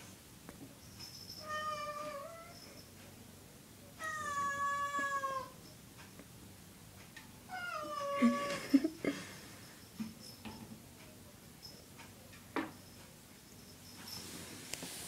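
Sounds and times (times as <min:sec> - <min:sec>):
cat meowing: 0:01.4 - 0:02.6, 0:04.0 - 0:05.6, 0:07.5 - 0:08.6.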